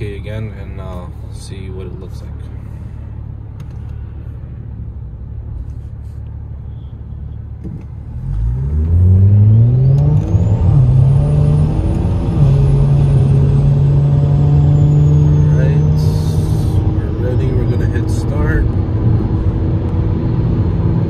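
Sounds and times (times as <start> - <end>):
car engine revving at full throttle: 8.1 - 21.0.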